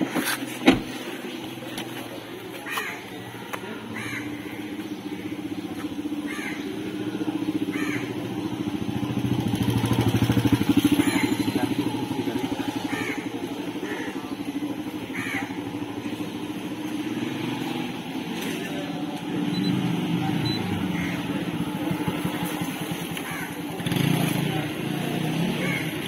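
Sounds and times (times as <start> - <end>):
motor engine running: 1.3 - 26.0
bird calling: 10.8 - 17.0, 20.4 - 22.6.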